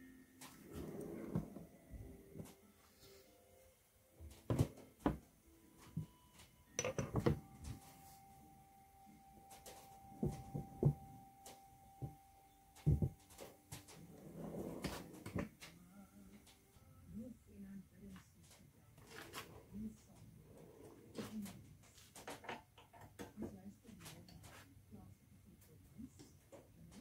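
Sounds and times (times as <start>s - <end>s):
hard objects knocking and clunking: 4.3s - 5.3s, 5.9s - 7.8s, 10.2s - 11.1s, 12.8s - 13.4s
faint steady tone: 5.0s - 18.1s.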